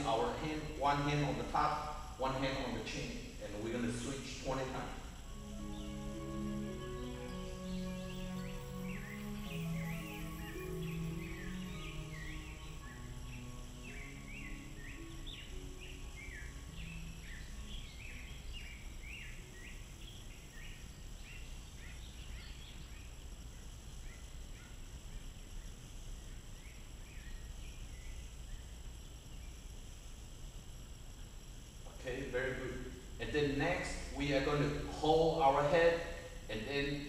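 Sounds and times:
soft background music: 0.0 - 23.0, 32.1 - 37.0
low steady hum: 0.0 - 37.0.

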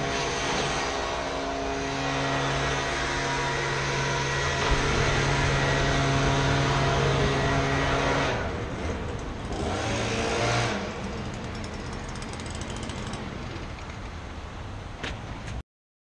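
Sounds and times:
leaf blower engine revving: 0.0 - 13.2.

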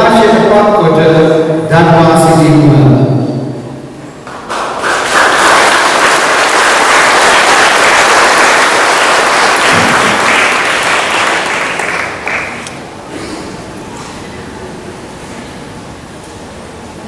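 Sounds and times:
congregation applauding: 4.2 - 12.9.

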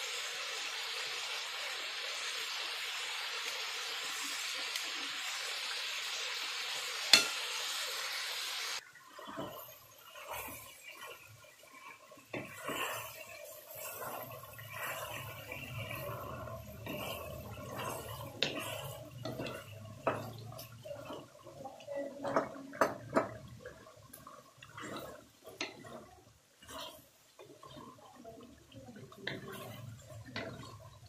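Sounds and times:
food bubbling in a pan: 0.0 - 31.0
wooden spatula stirring and scraping: 8.8 - 31.0
spatula knocking against pan: 22.2 - 23.4.

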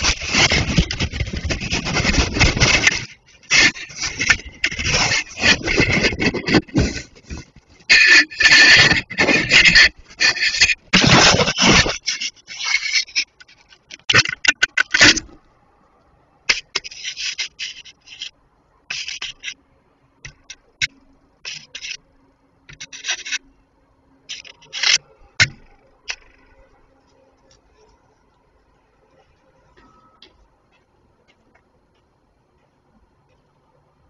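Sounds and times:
scraping against microphone: 0.0 - 15.4, 16.5 - 19.6, 20.3 - 22.0, 22.7 - 23.5, 24.2 - 28.3.

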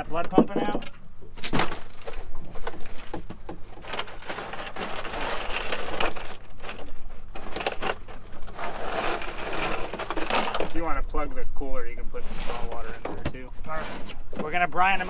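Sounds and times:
fish rustling in plastic cooler: 1.4 - 10.8.

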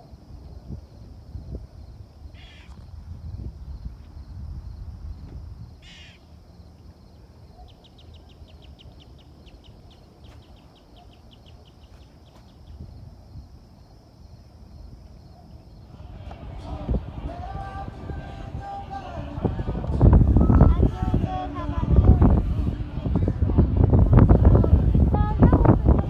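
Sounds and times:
low wind rumble on microphone: 0.0 - 26.0
crow cawing: 2.4 - 2.7, 5.8 - 6.2.

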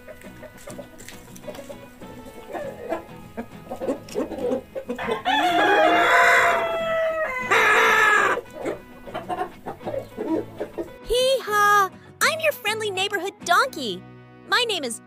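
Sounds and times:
chickens clucking: 0.0 - 11.0
rooster crowing: 5.0 - 8.5.

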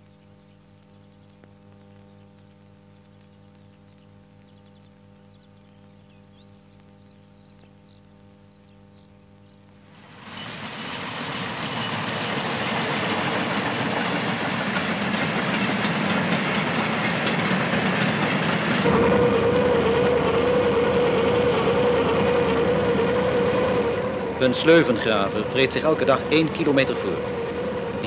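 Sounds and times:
digging machinery whine: 9.4 - 28.0
freight train passing: 10.0 - 28.0.

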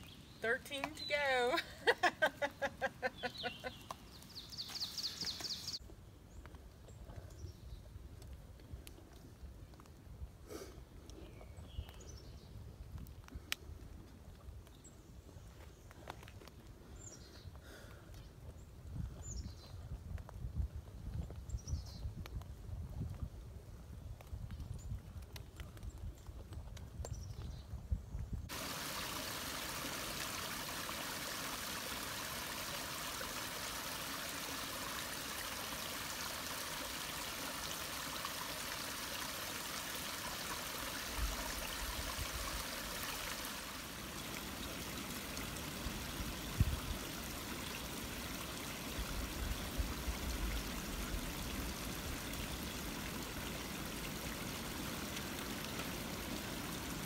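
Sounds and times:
stream trickling over rocks: 0.0 - 5.8, 28.5 - 57.0.

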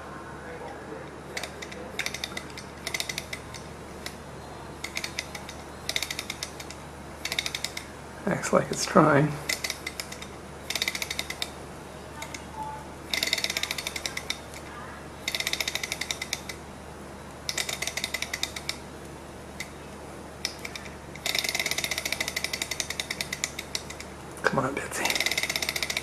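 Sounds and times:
flywheel being flicked: 1.0 - 4.2, 4.8 - 7.9, 8.7 - 16.6, 17.4 - 18.8, 19.5 - 19.8, 20.4 - 24.1, 25.1 - 26.0
engine metallic ticking: 1.3 - 4.2, 4.8 - 11.6, 13.1 - 14.6, 15.2 - 16.6, 20.4 - 24.1, 25.1 - 26.0.

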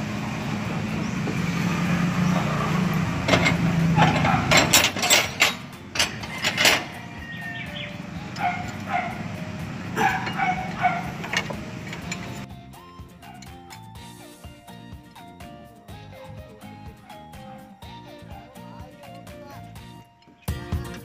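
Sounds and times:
dog barking: 4.0 - 4.7, 8.4 - 9.3, 10.0 - 11.3.

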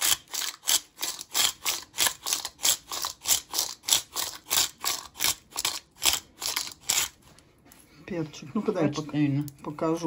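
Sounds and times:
pepper grinder crunching peppercorns: 0.0 - 7.4.

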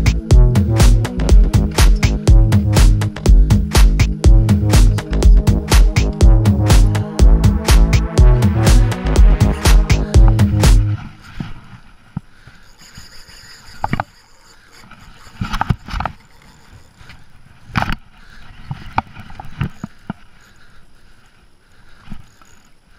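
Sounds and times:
music: 0.0 - 11.0.

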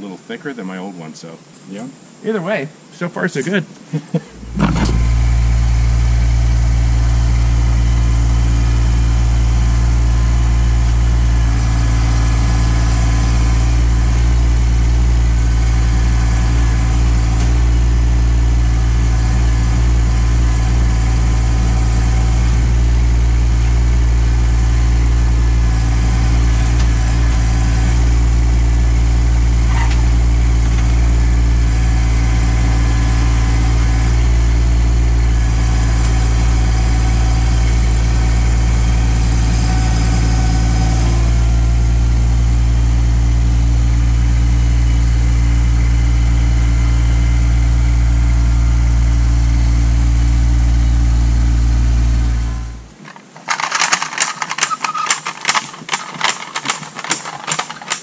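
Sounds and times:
tractor diesel engine running: 4.2 - 58.0.

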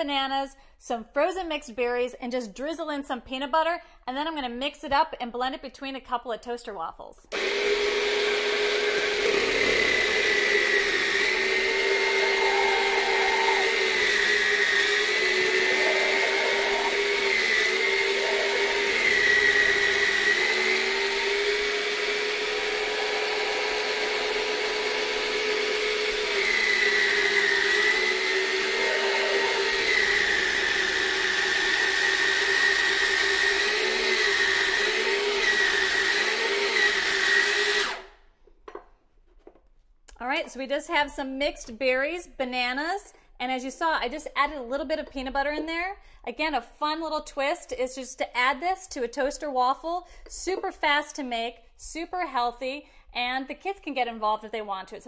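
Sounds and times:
dessert maker motor whining: 7.3 - 38.1.

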